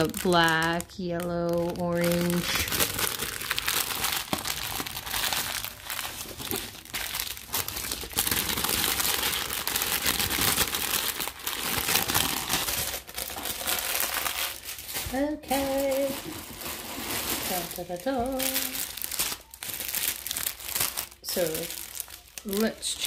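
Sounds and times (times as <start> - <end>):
plastic bags crinkling: 0.0 - 23.0.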